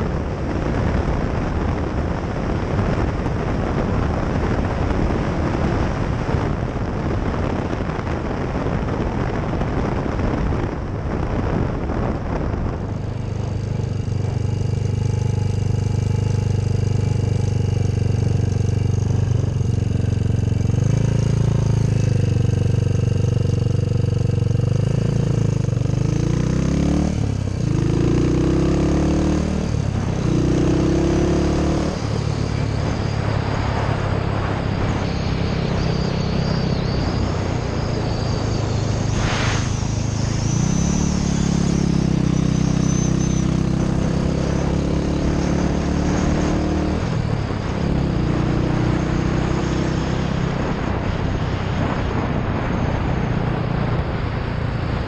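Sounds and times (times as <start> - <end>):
motorcycle engine running: 0.0 - 55.0
wind rush: 0.0 - 55.0.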